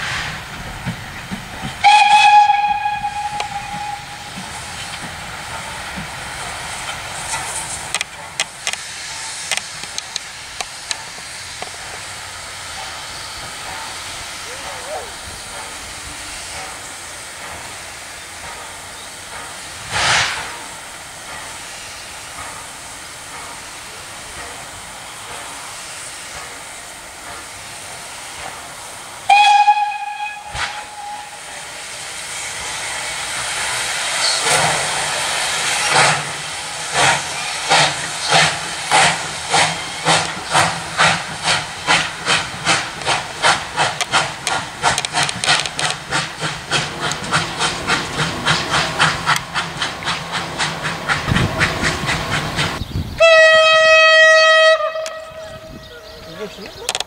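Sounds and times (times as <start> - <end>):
steam hissing: 0.0 - 56.6
steam whistle: 1.8 - 4.4, 29.3 - 31.6, 53.2 - 55.9.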